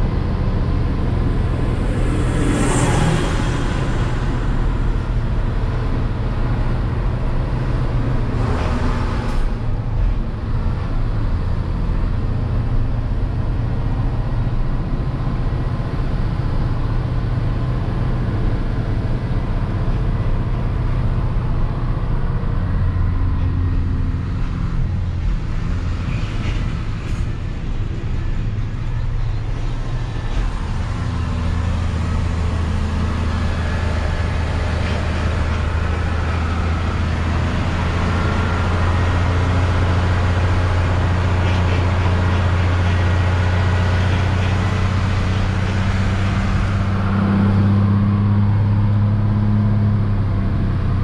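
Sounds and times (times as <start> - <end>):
diesel truck engine running: 0.0 - 51.0
road noise: 0.0 - 51.0.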